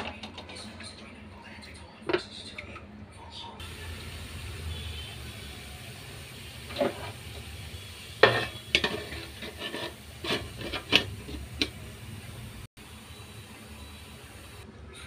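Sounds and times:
metal kitchenware clattering: 0:06.6 - 0:07.4, 0:08.2 - 0:11.9.

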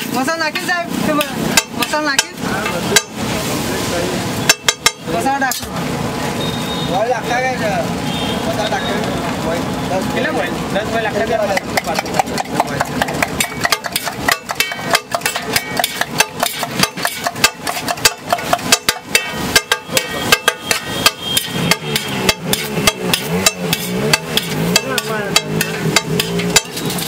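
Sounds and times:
metal spatula scraping a griddle: 0:11.6 - 0:27.0.

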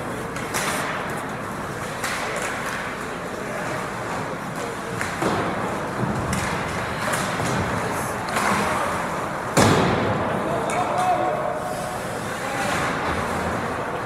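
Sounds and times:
knocks of sticks and puck: 0:00.0 - 0:11.4, 0:12.4 - 0:14.0
skates scraping ice: 0:10.3 - 0:14.0.

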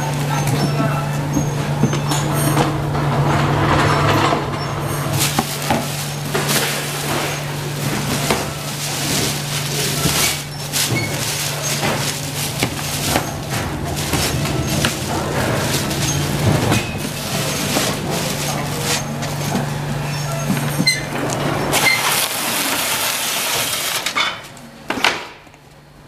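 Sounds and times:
wire racks clinking and clattering: 0:00.0 - 0:24.6
low machine hum: 0:00.0 - 0:26.0
plastic bag rustling: 0:00.1 - 0:24.1.

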